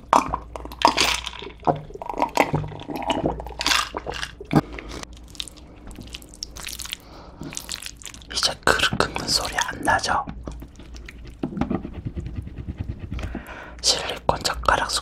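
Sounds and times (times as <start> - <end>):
person gulping water: 0.0 - 9.3.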